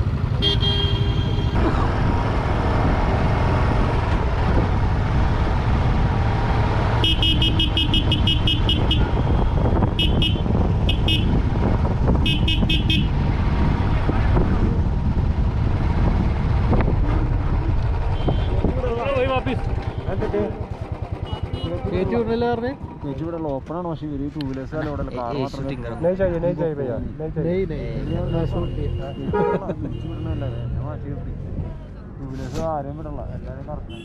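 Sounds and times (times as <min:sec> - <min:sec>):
rumble of engines: 0:00.0 - 0:34.0
wind: 0:00.0 - 0:34.0
vehicle horns honking: 0:00.3 - 0:01.6, 0:07.0 - 0:11.4, 0:12.2 - 0:13.2, 0:18.0 - 0:18.7, 0:19.7 - 0:20.4, 0:21.2 - 0:21.9, 0:28.0 - 0:30.8.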